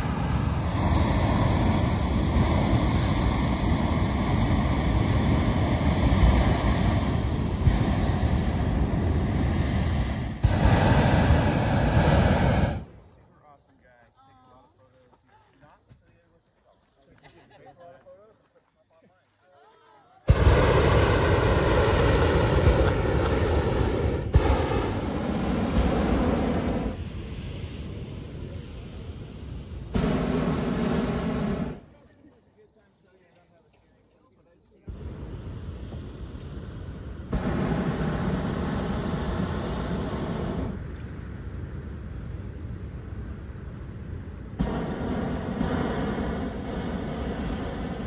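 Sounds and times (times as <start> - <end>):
propane burner blast: 0.0 - 13.0, 20.3 - 32.0, 34.9 - 48.0.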